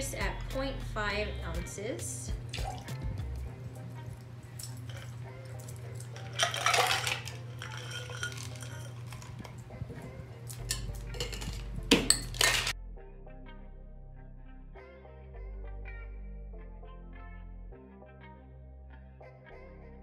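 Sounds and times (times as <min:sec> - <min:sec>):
ice clinking: 0:03.9 - 0:09.7, 0:10.5 - 0:12.7
ice cubes rattling into metal tin: 0:04.6 - 0:09.5, 0:10.6 - 0:12.7.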